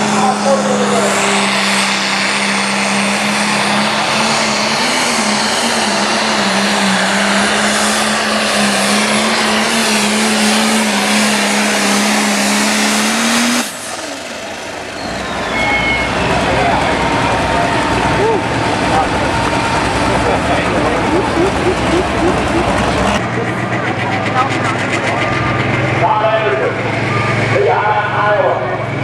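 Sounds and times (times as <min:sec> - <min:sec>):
tractor diesel engine at full throttle: 0:00.0 - 0:29.0
wide rushing noise: 0:17.0 - 0:26.2.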